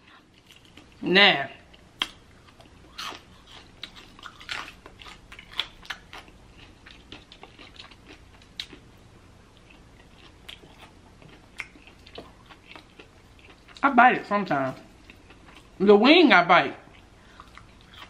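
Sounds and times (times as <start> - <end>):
crunchy chewing: 1.7 - 13.8, 16.9 - 18.0.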